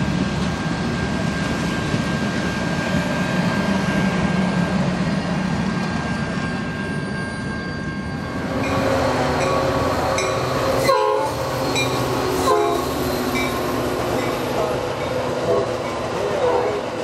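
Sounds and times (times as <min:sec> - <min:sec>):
trains rolling by: 0:00.0 - 0:17.0
train horn: 0:10.2 - 0:11.4, 0:12.3 - 0:12.9, 0:15.4 - 0:15.7, 0:16.3 - 0:16.8.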